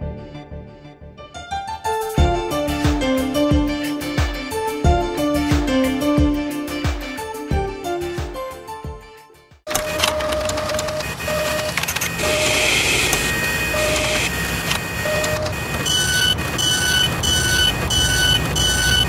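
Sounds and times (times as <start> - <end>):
mechanical clicks: 9.7 - 17.7
mechanical running noise: 9.7 - 19.0
short electronic beeps: 9.7 - 19.0
two-tone beeping: 9.7 - 19.0.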